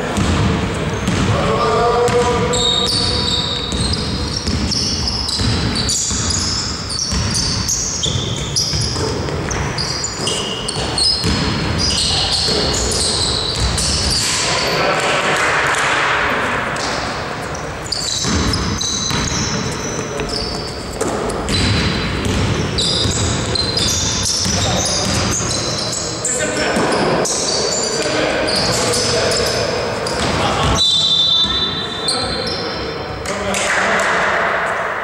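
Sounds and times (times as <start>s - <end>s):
sneakers squeaking on court: 0.0s - 1.3s, 2.0s - 14.7s, 16.7s - 32.8s
basketball bouncing: 0.0s - 1.4s, 2.0s - 14.4s, 17.9s - 25.6s, 30.0s - 30.8s
players calling out: 0.0s - 22.0s.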